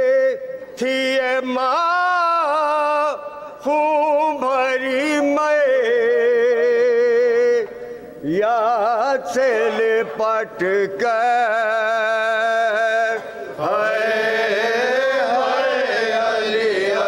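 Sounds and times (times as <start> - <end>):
man singing a lament: 0.0 - 14.1.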